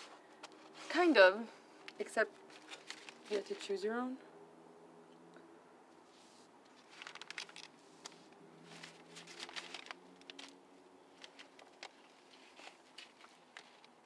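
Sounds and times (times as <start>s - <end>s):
paper packet rustling: 1.8s - 3.8s, 6.7s - 14.0s.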